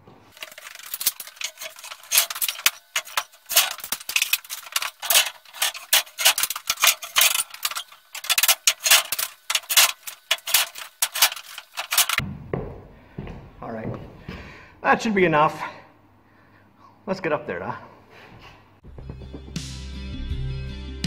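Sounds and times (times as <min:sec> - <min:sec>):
wooden strips clattering: 0:00.1 - 0:12.2.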